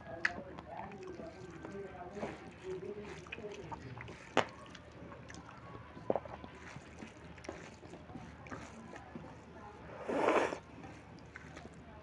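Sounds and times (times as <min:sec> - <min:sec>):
hand squelching moist rice: 0:00.9 - 0:11.8.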